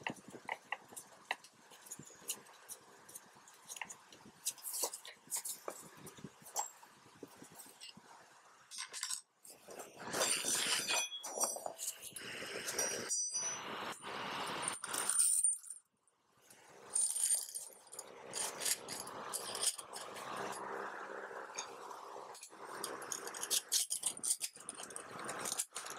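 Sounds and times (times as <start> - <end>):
metal parts and tools clattering: 0.0 - 6.8, 8.7 - 13.6, 14.6 - 15.8, 16.9 - 20.6, 22.4 - 25.9
short metallic rings: 10.1 - 13.7.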